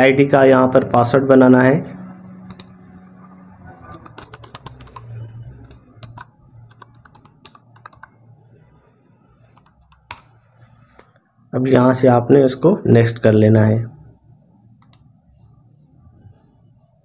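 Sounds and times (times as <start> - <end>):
keyboard key clicks: 3.9 - 8.2.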